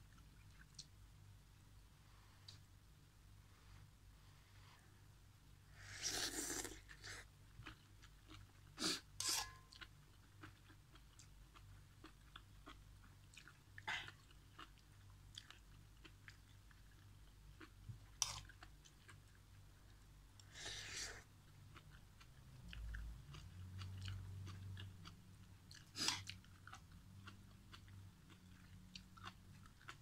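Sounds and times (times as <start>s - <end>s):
chewing with wet clicks: 0.1s - 1.0s, 7.6s - 8.7s, 9.6s - 19.4s, 21.5s - 30.0s
person slurping noodles: 5.8s - 7.2s.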